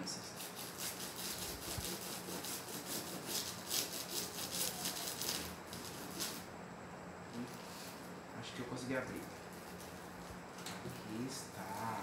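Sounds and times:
fingernail scratching plastic wrapping: 0.4s - 6.5s.

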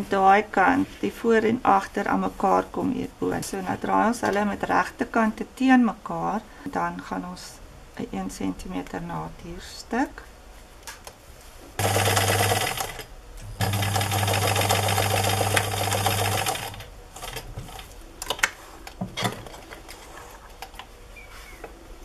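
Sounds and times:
sewing machine stitching: 11.8s - 17.8s.

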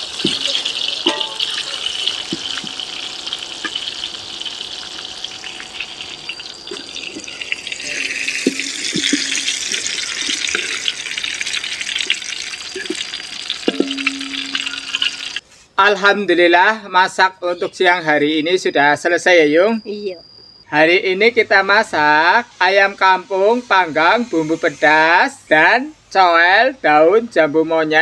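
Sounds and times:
food sizzling in hot oil: 0.0s - 15.4s, 21.9s - 25.4s
metal spatula knocking on wok: 0.2s - 1.7s, 13.7s - 15.2s.

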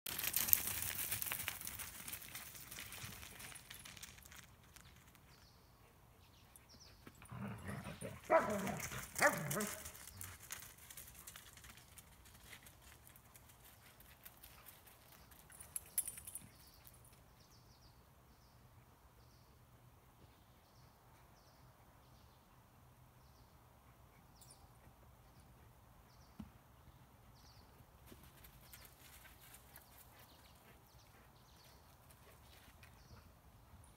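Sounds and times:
dogs barking and growling: 7.2s - 10.0s.

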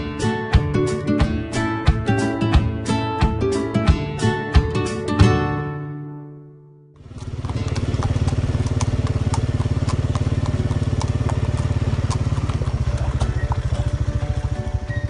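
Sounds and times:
horses' hooves clicking: 7.0s - 15.0s
small engine running: 7.0s - 15.0s.

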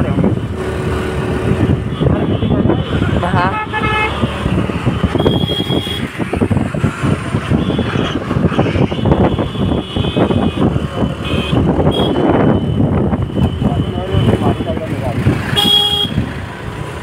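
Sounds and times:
wind buffeting microphone: 0.0s - 16.5s
traffic engines running: 0.0s - 17.0s
car horn toots: 2.0s - 4.2s, 8.8s - 12.5s, 15.6s - 16.2s.

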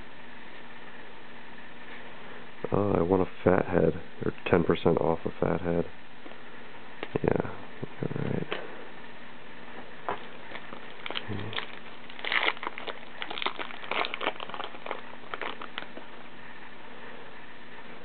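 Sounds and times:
foil wrapper crinkling and tearing: 10.5s - 16.0s.

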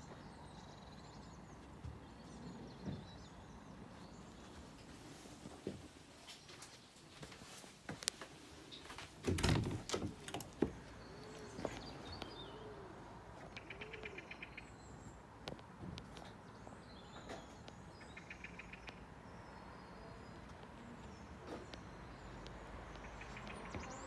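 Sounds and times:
low bird calls: 8.8s - 15.2s, 17.0s - 24.0s
rapid bird trills: 13.5s - 14.8s.

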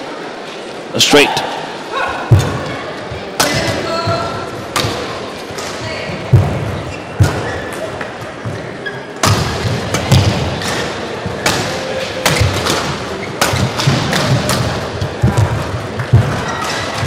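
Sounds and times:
rackets hitting shuttlecock: 3.4s - 3.8s, 4.7s - 7.7s, 9.2s - 17.0s.

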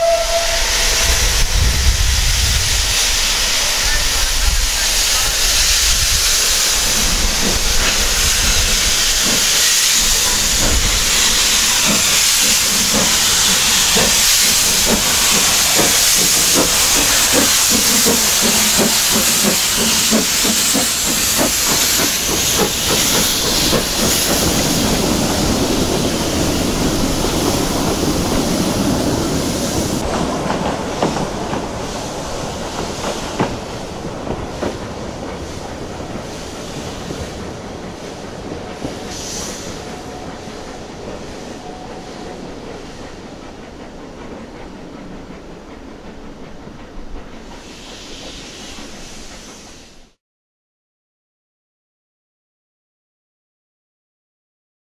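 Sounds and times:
steam locomotive exhaust chuffs: 0.0s - 50.2s
steam hiss from drain cocks: 2.6s - 25.0s, 38.7s - 40.7s, 47.4s - 50.2s.

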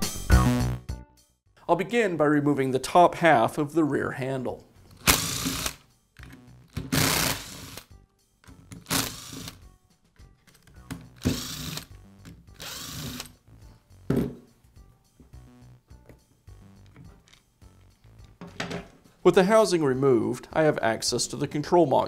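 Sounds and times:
faint background music: 1.6s - 22.0s
power screwdriver whining: 4.9s - 5.8s, 6.8s - 7.9s, 8.8s - 9.6s, 11.0s - 11.9s, 12.6s - 13.4s.

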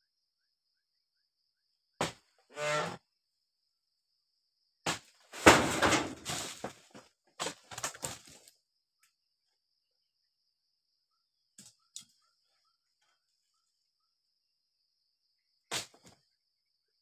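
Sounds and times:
rustling crash of palm fronds: 5.3s - 8.4s.

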